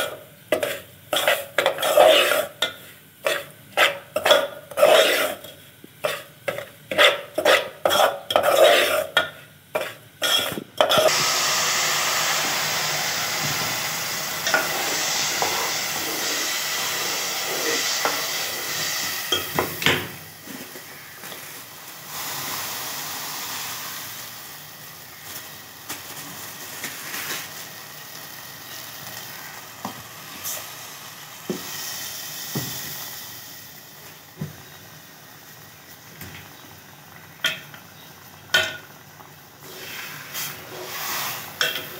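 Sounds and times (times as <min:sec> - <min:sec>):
liquid sizzling in hot pan: 0:00.0 - 0:41.9
metal spoon scraping pot: 0:00.6 - 0:11.1.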